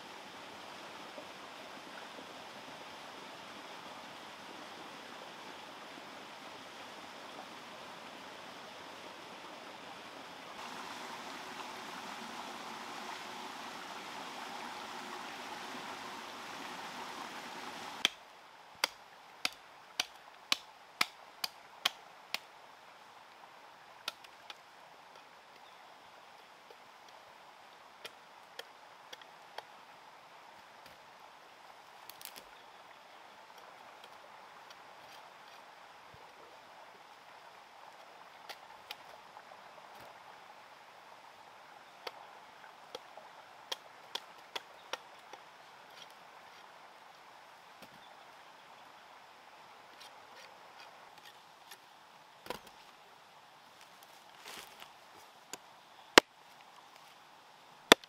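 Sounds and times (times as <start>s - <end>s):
heavy rain: 10.6s - 18.0s.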